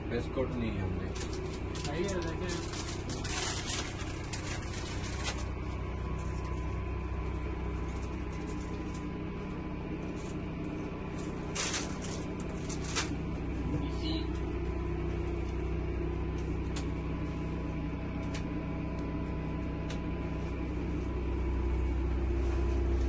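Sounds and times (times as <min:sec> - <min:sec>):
low rumble inside vehicle cabin: 0:00.0 - 0:23.0.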